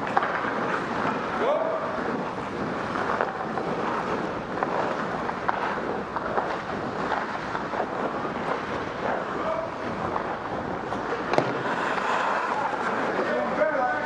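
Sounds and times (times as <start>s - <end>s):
ice skates scraping on ice: 0.0s - 14.0s.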